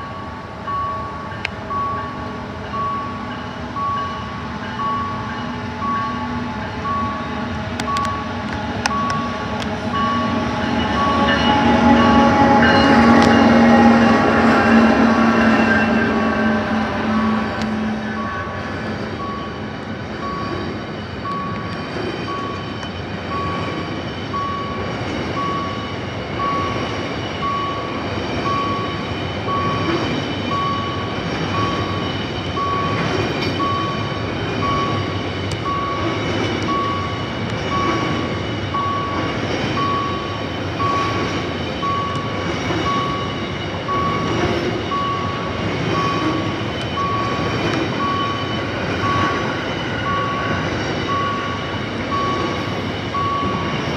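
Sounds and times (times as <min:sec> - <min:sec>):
freight train rumbling and rattling: 0:00.0 - 0:53.9
level crossing signal beeping: 0:00.0 - 0:53.9.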